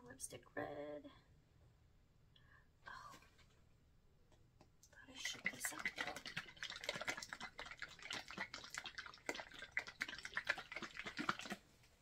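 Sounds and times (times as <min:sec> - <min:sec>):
paint sloshing in shaken bottle: 0:05.1 - 0:12.0.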